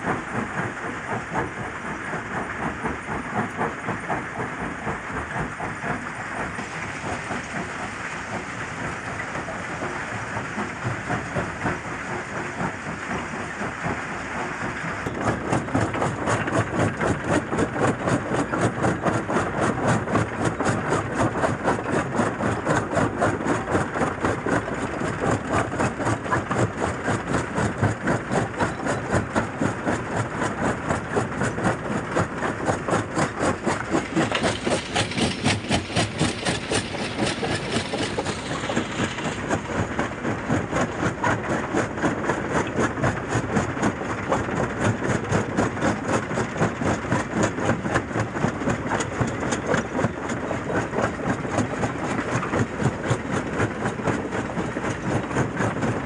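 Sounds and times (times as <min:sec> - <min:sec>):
jaw crusher crushing rock: 0:33.2 - 0:39.9.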